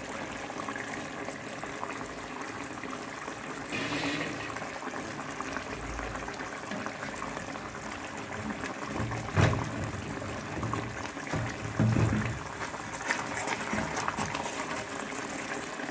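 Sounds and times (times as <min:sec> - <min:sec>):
curry bubbling in a pot: 0:00.0 - 0:15.9.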